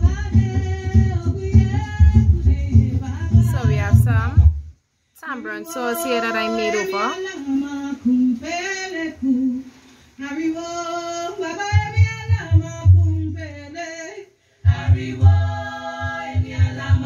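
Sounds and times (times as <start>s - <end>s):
person singing in song: 0.0s - 4.2s, 5.4s - 17.0s
pulsing bass beat: 0.0s - 4.7s, 14.7s - 17.0s.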